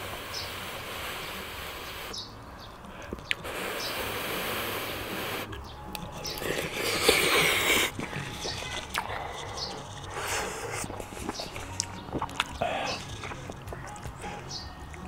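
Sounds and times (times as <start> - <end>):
person chewing and slurping: 3.0 - 15.0.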